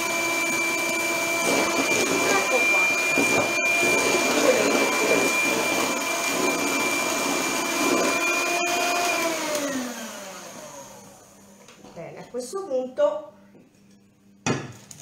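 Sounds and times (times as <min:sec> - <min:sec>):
beaters churning liquid batter: 0:00.0 - 0:11.2
electric hand mixer whine: 0:00.0 - 0:11.6.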